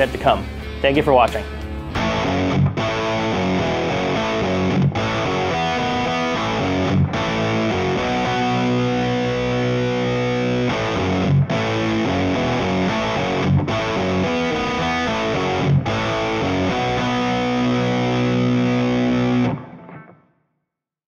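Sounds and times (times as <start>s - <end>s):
distorted electric guitar chords: 0.0s - 20.3s.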